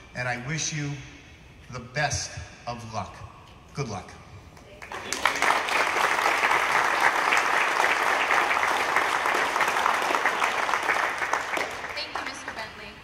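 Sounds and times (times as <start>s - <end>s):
crowd applauding: 4.8s - 12.9s.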